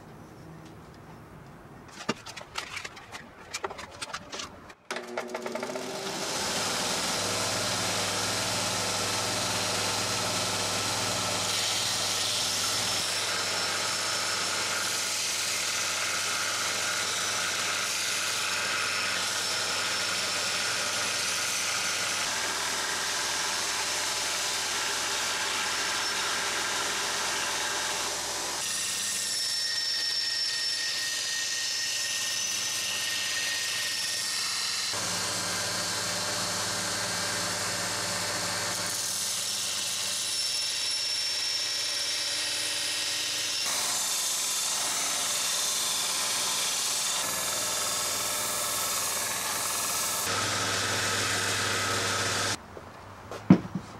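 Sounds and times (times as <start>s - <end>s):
sander motor hum: 4.9s - 14.8s, 34.9s - 39.0s, 43.7s - 52.6s.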